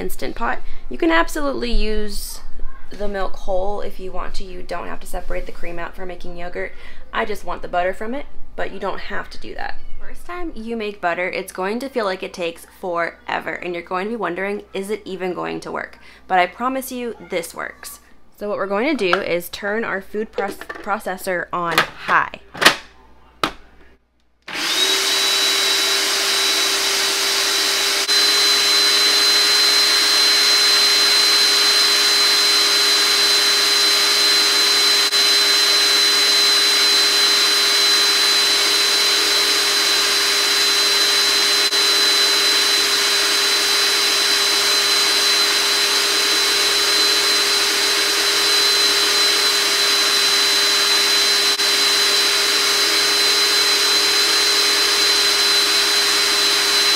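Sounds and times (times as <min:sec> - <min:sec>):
food processor motor whine: 0:24.5 - 0:56.9.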